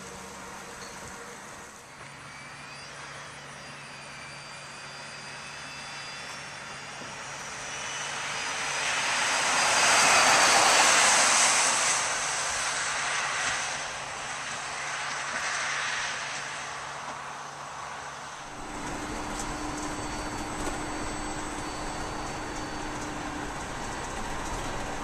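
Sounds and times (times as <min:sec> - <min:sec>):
electric motor whine: 0:00.0 - 0:11.0, 0:18.4 - 0:25.0.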